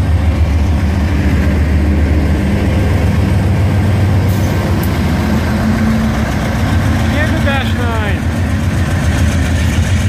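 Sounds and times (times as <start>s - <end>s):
diesel locomotives rumbling: 0.0s - 10.0s.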